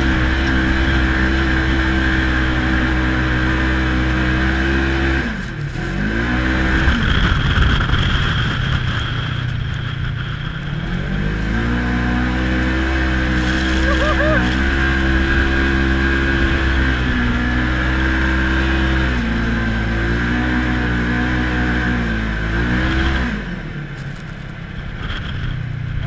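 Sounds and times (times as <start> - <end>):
off-road vehicle engine revving: 0.0 - 26.0.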